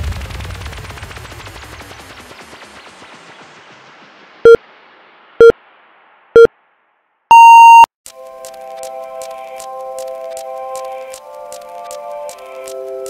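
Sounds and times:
long high beep: 7.3s - 7.9s
short timer beeps: 7.3s - 7.9s
background music: 8.1s - 13.0s.

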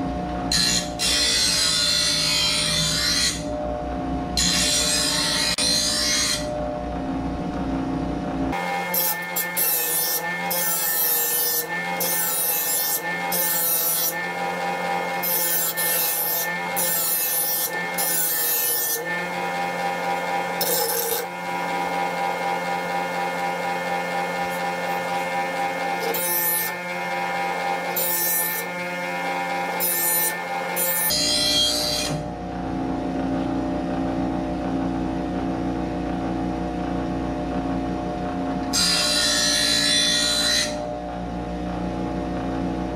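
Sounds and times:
bench grinder humming: 0.0s - 3.6s, 4.4s - 7.7s, 8.3s - 42.9s
blade grinding on wheel: 8.5s - 32.2s.

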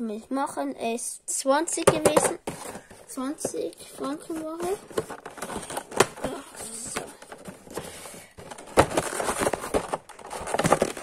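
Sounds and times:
handling clicks and taps: 1.8s - 2.6s.

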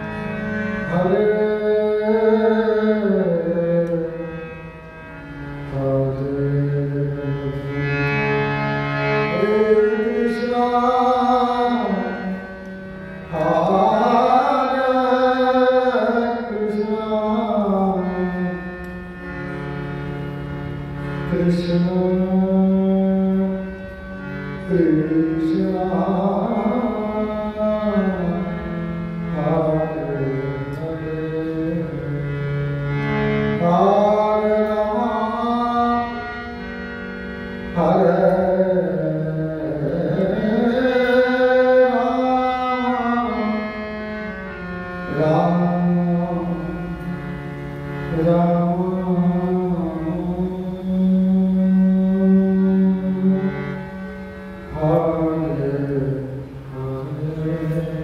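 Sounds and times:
harmonium chords: 0.0s - 58.0s
man singing devotional prayer: 0.8s - 4.3s, 5.7s - 7.7s, 9.2s - 12.5s, 13.3s - 18.8s, 21.3s - 23.8s, 24.6s - 32.5s, 33.4s - 36.6s, 37.7s - 47.3s, 48.1s - 53.8s, 54.7s - 58.0s.

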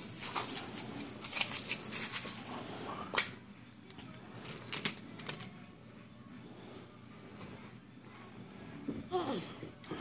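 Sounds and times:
foil wrapper crinkling: 0.0s - 2.5s.

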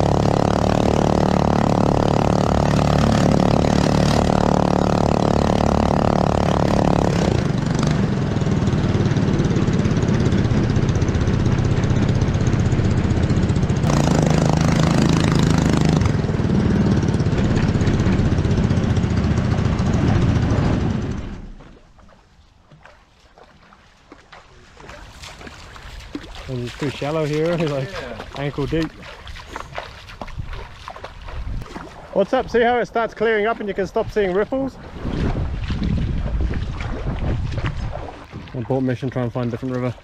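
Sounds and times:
small engine running: 0.0s - 21.6s, 25.1s - 34.7s.

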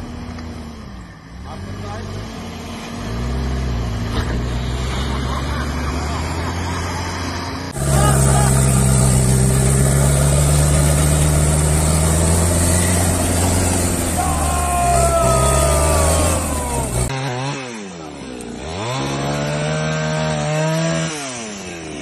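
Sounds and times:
pickup truck engine running: 7.6s - 17.1s
chainsaw revving: 7.7s - 22.0s.

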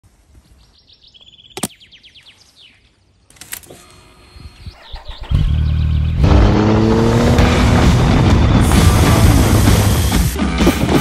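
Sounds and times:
birds chirping trills: 0.5s - 6.8s
motorcycle engine starting and running: 3.4s - 11.0s.

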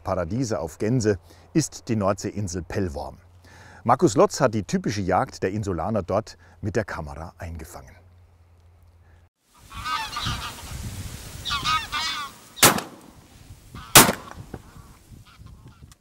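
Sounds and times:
geese honking: 9.5s - 10.8s, 11.4s - 12.8s, 13.7s - 15.9s
shotgun shots: 12.6s - 13.2s, 13.9s - 14.6s.

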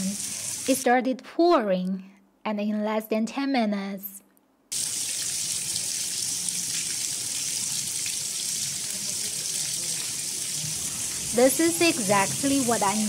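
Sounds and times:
heavy rain on stone paving: 4.8s - 13.0s.

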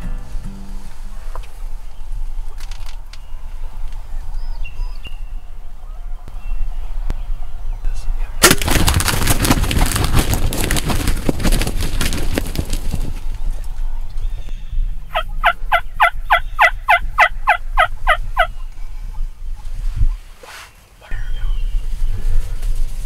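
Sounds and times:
bird wings flapping: 8.4s - 13.4s.

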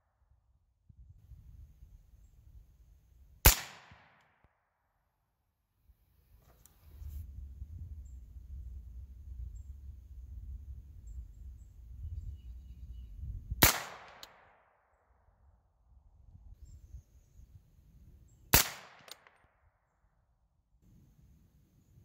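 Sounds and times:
suppressed rifle shots: 3.4s - 4.4s, 13.6s - 14.6s, 18.5s - 19.4s.

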